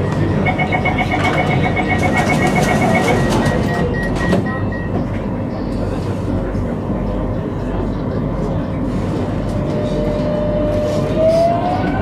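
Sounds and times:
standing train hum: 0.0 - 12.0
short warning beeps: 0.4 - 5.0.

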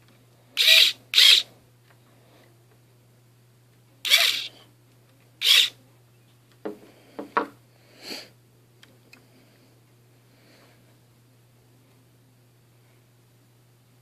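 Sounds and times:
small electric motor whir: 0.6 - 1.5, 4.1 - 4.5, 5.4 - 5.8.

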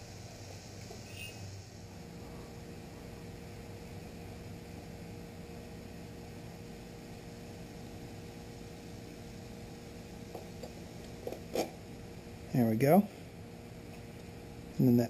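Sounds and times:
low hum and hiss: 0.0 - 15.0.

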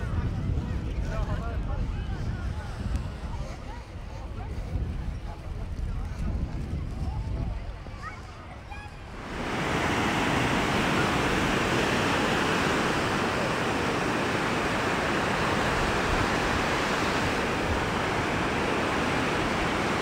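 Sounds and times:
sea surf rushing hiss: 9.1 - 20.0.

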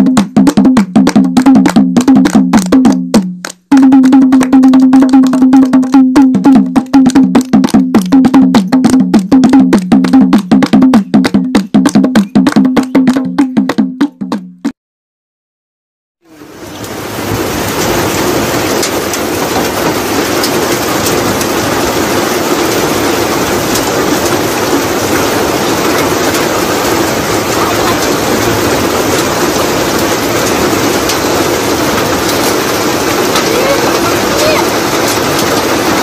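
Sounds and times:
steady rain falling: 16.2 - 36.0.

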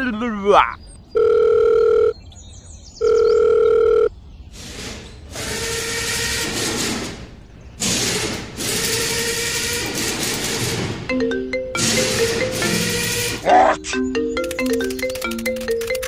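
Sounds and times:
power tool whirring: 4.6 - 10.9, 11.8 - 13.5.

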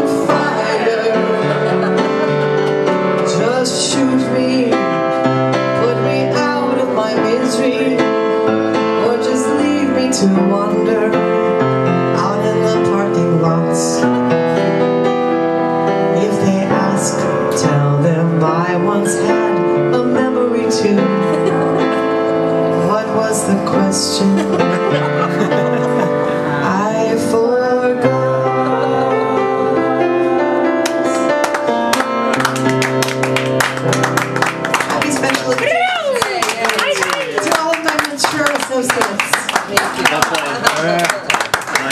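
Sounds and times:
woman singing into a microphone: 0.0 - 1.7, 3.3 - 14.2, 16.1 - 21.8, 22.7 - 30.4
piano accompaniment: 0.0 - 41.9.

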